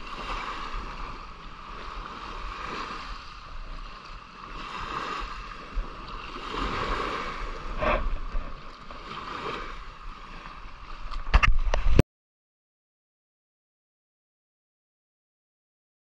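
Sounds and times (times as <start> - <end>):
water at the shore: 0.0 - 12.0
wind: 0.0 - 12.0.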